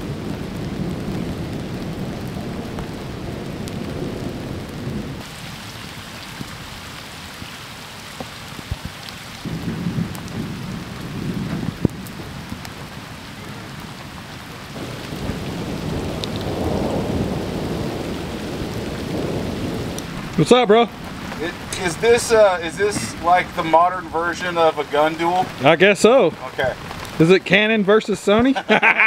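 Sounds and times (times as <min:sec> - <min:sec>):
low rolls of thunder: 0:00.0 - 0:06.8, 0:09.4 - 0:27.2
steady rain falling: 0:00.0 - 0:29.0.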